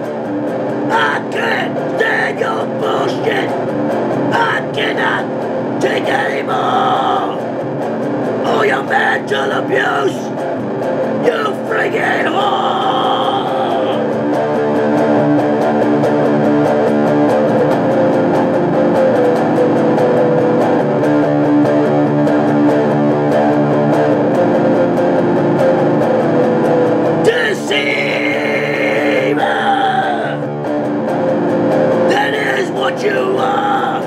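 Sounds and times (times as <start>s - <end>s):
heavy metal guitar riff: 0.0s - 34.0s
man screaming vocals: 0.9s - 3.6s, 4.3s - 7.4s, 8.5s - 10.3s, 11.2s - 14.1s, 27.2s - 30.5s, 32.1s - 34.0s.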